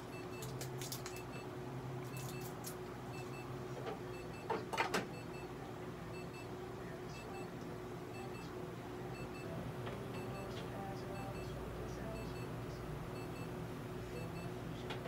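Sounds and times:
veterinary equipment humming: 0.0 - 15.0.

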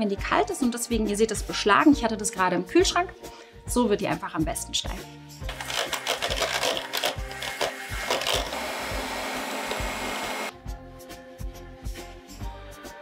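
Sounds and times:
electric hand mixer whirring: 5.5 - 10.5.

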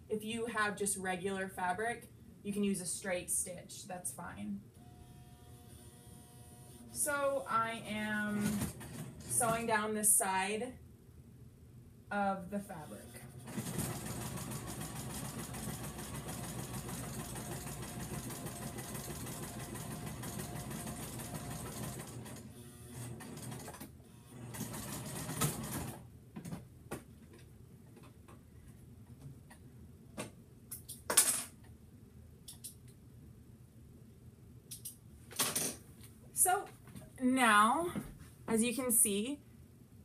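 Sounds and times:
sewing machine running: 8.3 - 9.6, 13.2 - 26.0.

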